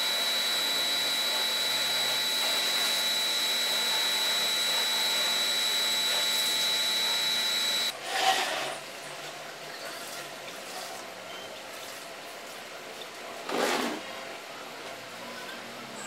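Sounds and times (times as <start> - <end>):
pressure washer whining: 0.0 - 7.9.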